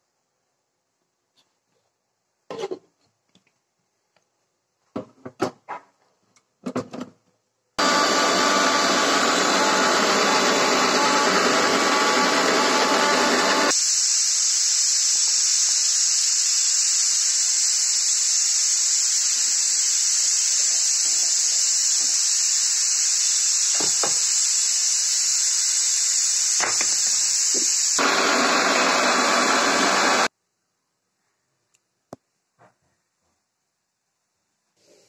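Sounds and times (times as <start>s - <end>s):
mixer grinder running: 7.8s - 13.8s, 19.4s - 30.3s
steady high hiss: 13.7s - 28.1s.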